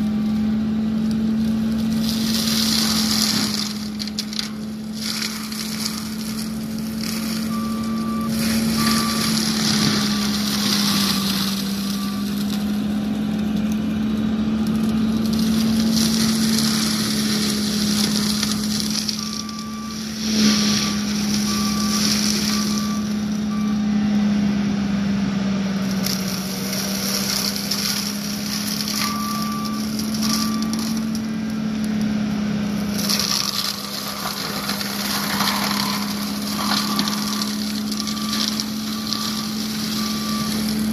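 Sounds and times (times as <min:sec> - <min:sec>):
diesel engine humming under load: 0:00.0 - 0:40.9
mulching head shredding brush: 0:00.0 - 0:40.9
backup alarm beeping: 0:07.4 - 0:12.5, 0:18.0 - 0:24.0, 0:28.9 - 0:31.1, 0:35.5 - 0:40.9.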